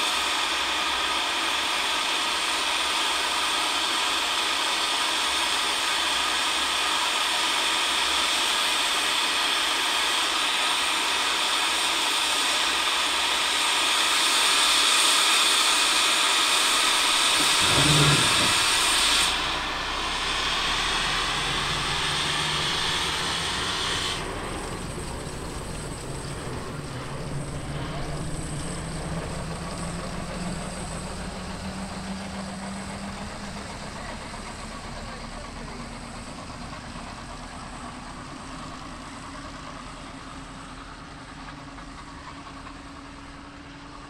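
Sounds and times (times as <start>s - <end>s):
steam locomotive hissing: 0.0s - 44.0s
low hum: 16.9s - 19.3s
brief low sound: 17.1s - 19.0s.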